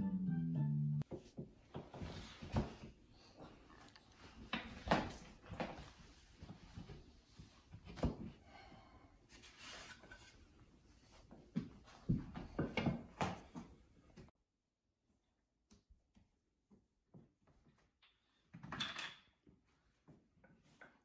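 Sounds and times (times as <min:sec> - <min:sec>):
wood scraping: 0:09.3 - 0:10.4.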